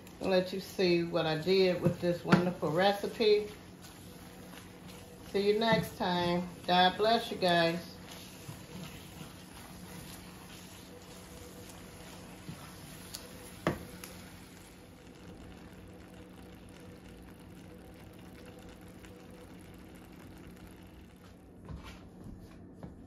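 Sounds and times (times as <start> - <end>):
food sizzling in a skillet: 0.0 - 16.4.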